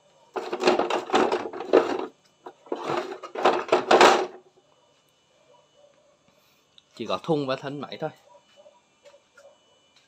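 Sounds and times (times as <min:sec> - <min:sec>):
tool clattering in plastic case: 0:00.4 - 0:02.1, 0:02.7 - 0:04.4.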